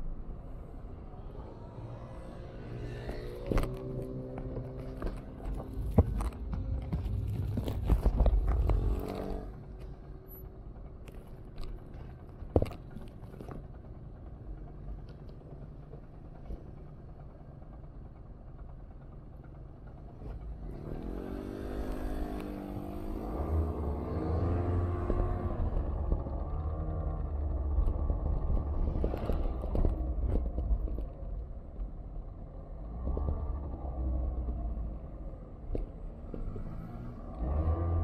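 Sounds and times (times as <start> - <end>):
street noise: 0.0 - 38.0
motor vehicle passing: 20.7 - 29.9.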